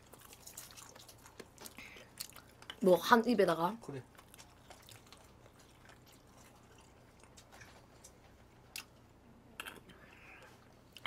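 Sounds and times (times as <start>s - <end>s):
mouth and eating clicks: 4.2s - 9.0s, 9.6s - 10.2s.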